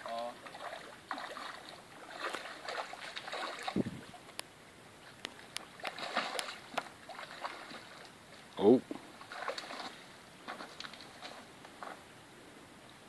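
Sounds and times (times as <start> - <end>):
fish splashing in water: 0.4 - 4.0, 5.4 - 8.1, 9.2 - 11.3.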